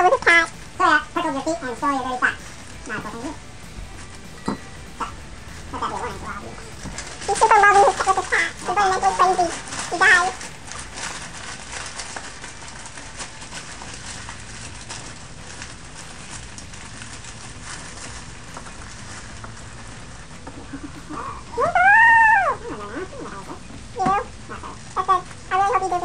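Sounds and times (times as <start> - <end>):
newspaper crinkling: 0.0 - 26.0
cat meowing: 21.4 - 26.0.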